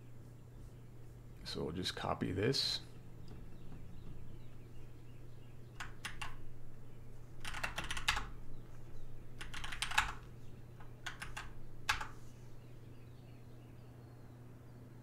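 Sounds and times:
keyboard keystroke clicks: 5.8 - 6.4.

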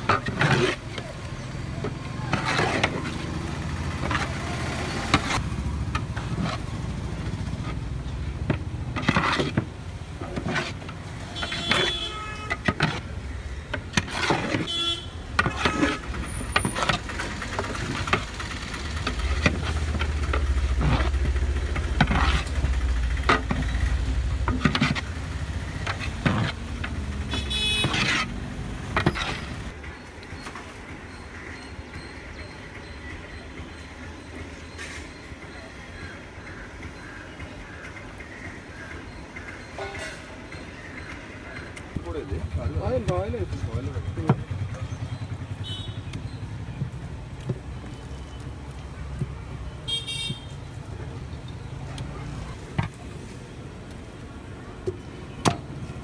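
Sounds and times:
metal ladle scraping a pot: 0.0 - 5.4, 13.9 - 14.7, 15.4 - 18.2, 21.8 - 23.8, 25.8 - 29.7
road traffic: 0.0 - 56.0
vehicle horn: 11.4 - 12.6, 14.7 - 16.1, 27.3 - 28.2, 45.6 - 46.0, 49.9 - 50.6.

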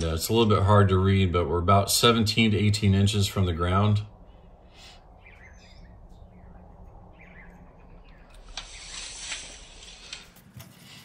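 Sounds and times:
birds chirping: 0.0 - 10.4
brief rush of hiss: 8.4 - 10.3.

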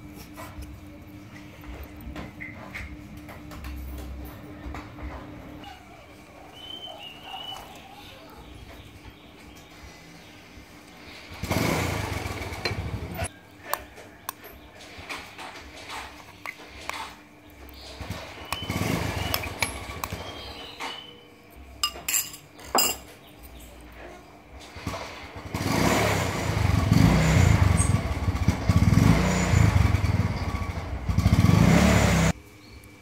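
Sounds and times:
spoon clinking against metal pot: 21.8 - 23.1.

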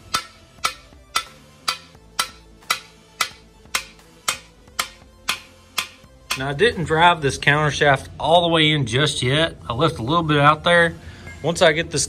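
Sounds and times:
mallet tapping metal: 0.0 - 6.8.

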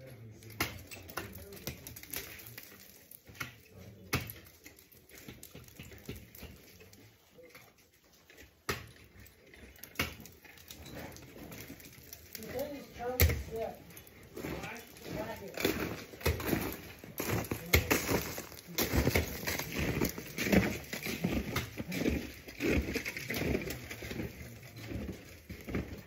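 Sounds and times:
ice tools knocking on ice: 12.8 - 13.8.

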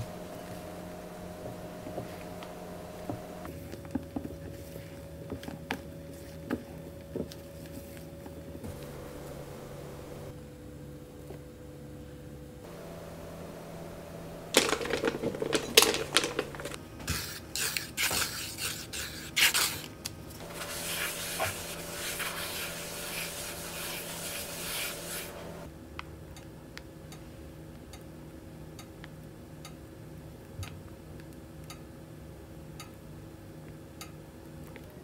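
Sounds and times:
paper towel rubbing a frying pan: 20.4 - 25.7.

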